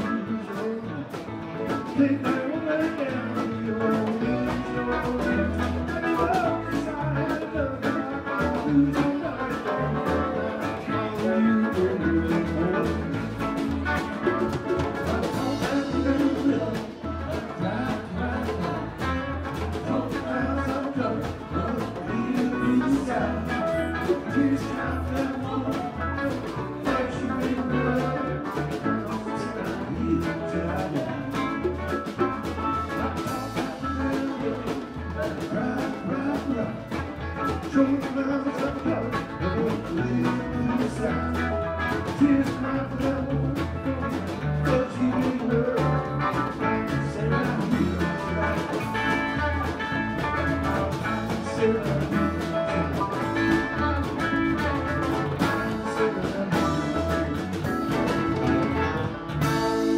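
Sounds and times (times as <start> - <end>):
drums keeping steady beat: 0.0 - 59.9
live band playing instrumental: 0.0 - 59.9.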